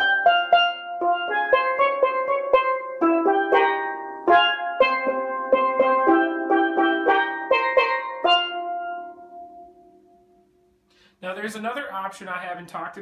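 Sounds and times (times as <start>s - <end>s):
steel pan struck with mallets: 0.0s - 9.2s.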